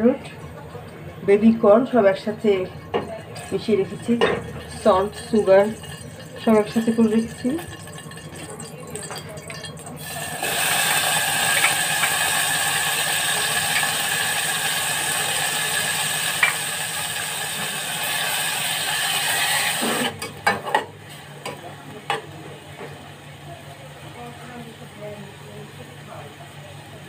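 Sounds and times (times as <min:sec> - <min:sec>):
chicken sizzling in hot oil: 0:03.3 - 0:21.4.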